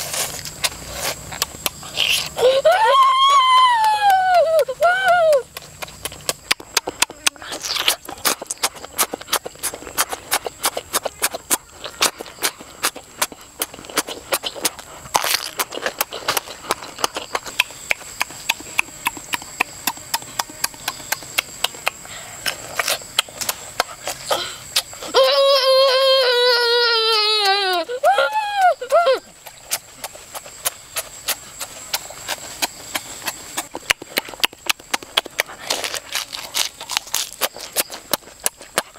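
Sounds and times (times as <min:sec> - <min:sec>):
wet chewing and lip-smacking: 0:00.0 - 0:02.7, 0:03.4 - 0:25.2, 0:27.1 - 0:38.9.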